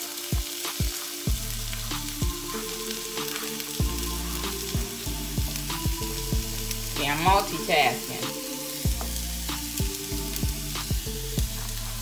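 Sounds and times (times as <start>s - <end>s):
background music: 0.0s - 12.0s
onion sizzling in oil: 0.0s - 12.0s.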